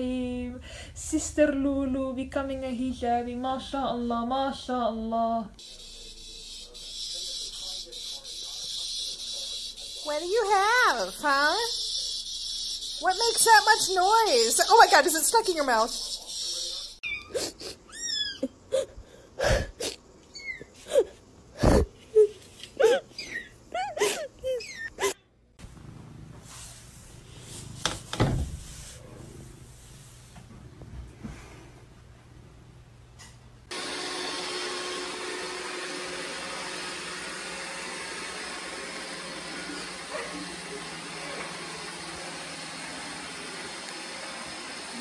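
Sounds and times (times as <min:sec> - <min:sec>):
faint room hum: 0:00.0 - 0:11.1
robot vacuum cleaner whirring: 0:05.6 - 0:16.8, 0:33.7 - 0:45.0.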